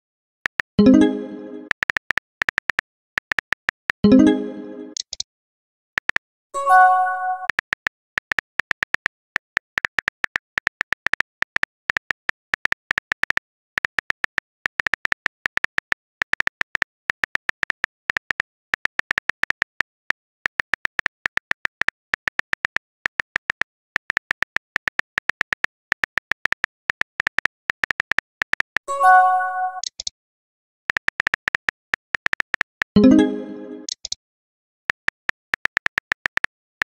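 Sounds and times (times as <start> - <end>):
short multi-note chime: 28.9 - 29.8, 33.0 - 33.9.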